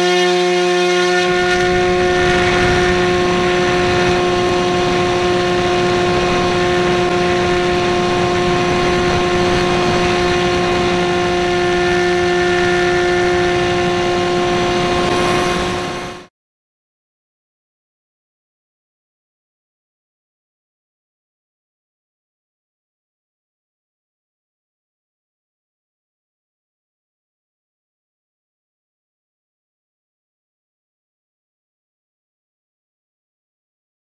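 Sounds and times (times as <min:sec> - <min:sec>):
electric motor whine: 0:00.0 - 0:16.3
propeller rushing: 0:00.0 - 0:16.3.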